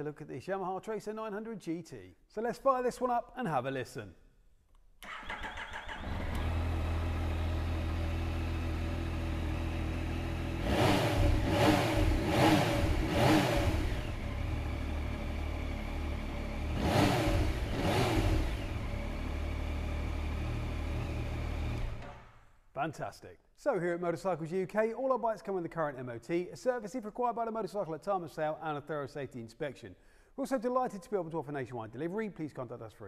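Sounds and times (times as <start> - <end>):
motorcycle starter cranking: 5.0 - 6.9
engine revving: 5.1 - 22.2
motorcycle engine idling: 5.5 - 16.8.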